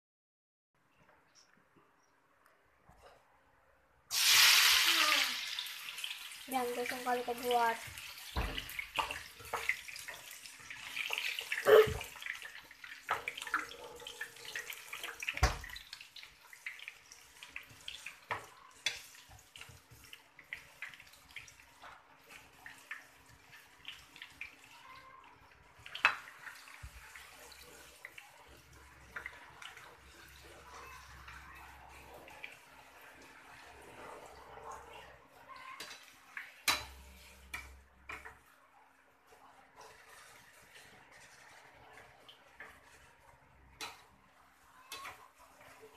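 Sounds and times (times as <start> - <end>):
food sizzling in oil: 4.1 - 45.9
metal spatula scraping pan: 35.7 - 38.4, 39.8 - 45.9.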